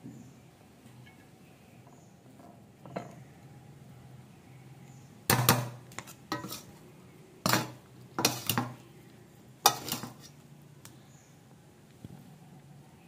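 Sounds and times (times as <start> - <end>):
utensils clinking in metal pot: 5.3 - 6.7, 7.4 - 8.8, 9.7 - 10.4.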